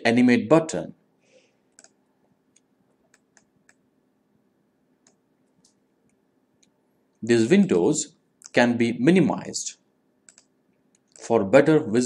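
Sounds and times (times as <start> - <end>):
computer mouse clicks: 1.7 - 3.8, 5.0 - 6.8, 10.3 - 11.2.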